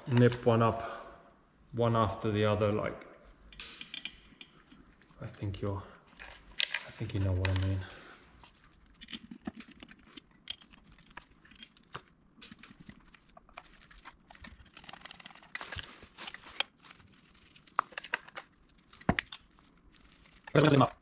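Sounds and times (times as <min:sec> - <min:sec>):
scraping and rustling: 0:04.6 - 0:21.0.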